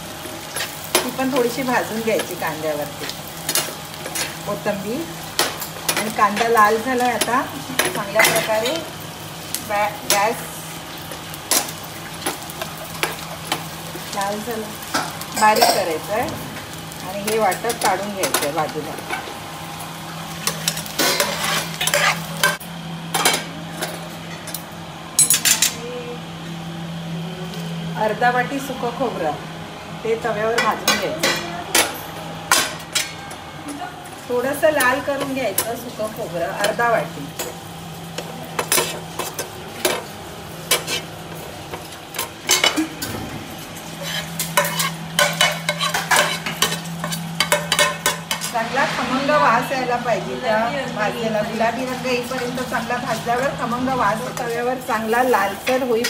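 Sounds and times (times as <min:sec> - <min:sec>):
metal spatula scraping frying pan: 0:20.5 - 0:22.6, 0:43.9 - 0:48.9.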